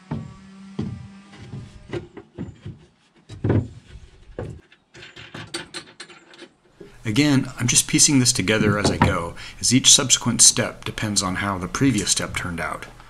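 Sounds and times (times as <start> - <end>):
wooden panels thumping: 0.0 - 6.0, 8.2 - 9.4.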